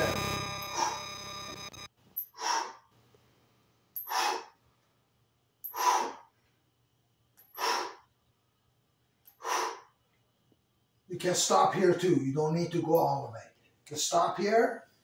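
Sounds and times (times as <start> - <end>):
man exhaling forcefully: 4.1 - 4.6.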